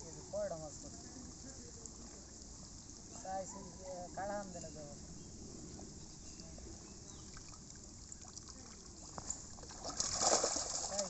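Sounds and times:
water trickling and splashing: 0.0 - 11.0
water pouring off a net: 7.4 - 11.0.

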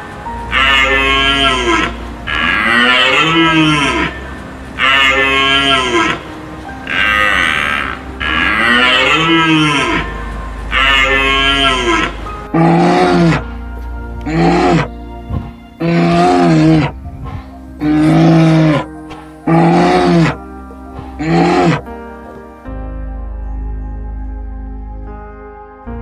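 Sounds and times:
large animal bellowing: 0.5 - 22.4.

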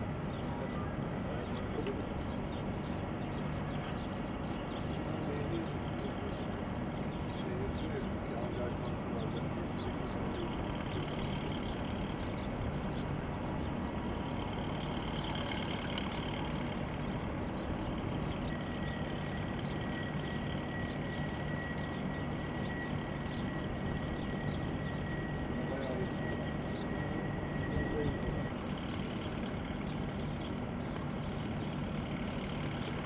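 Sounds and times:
distant jet engine: 0.0 - 33.0.

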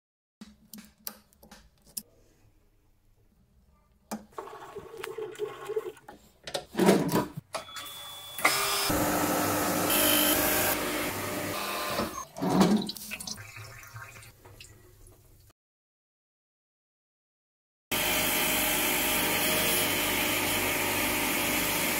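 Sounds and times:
abrasive cut-off machine running: 8.4 - 12.1.

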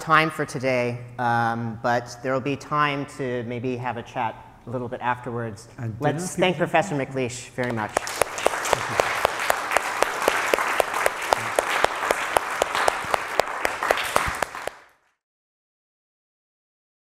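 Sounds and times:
audience applauding: 7.6 - 15.0
sharp close hand claps: 7.6 - 15.0.

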